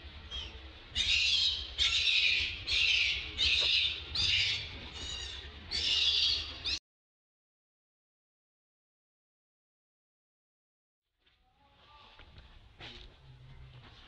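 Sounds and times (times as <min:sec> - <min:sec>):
baby monkey screaming: 0:00.3 - 0:06.8.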